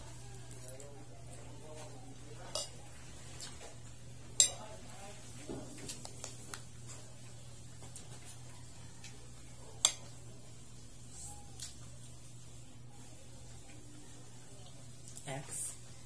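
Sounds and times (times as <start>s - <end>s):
cutlery clinking on a plate: 2.5s - 2.8s, 4.4s - 4.6s.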